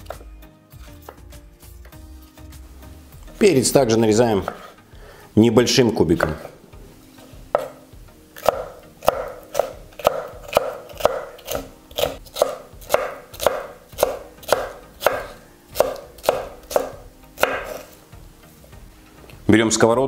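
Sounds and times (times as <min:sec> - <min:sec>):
knife chopping on wooden board: 0:00.0 - 0:01.3, 0:04.4 - 0:04.8, 0:06.2 - 0:06.6, 0:07.2 - 0:18.0.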